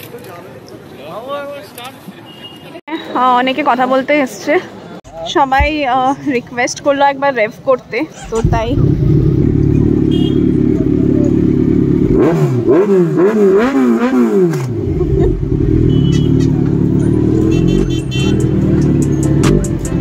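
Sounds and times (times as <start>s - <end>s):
motorcycle idling and revving: 8.2s - 20.0s.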